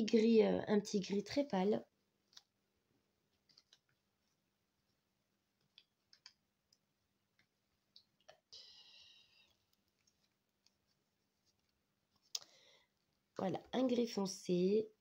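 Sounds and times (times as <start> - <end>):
faint clicks of cards handled: 2.2 - 2.6, 3.3 - 8.5, 9.3 - 13.2.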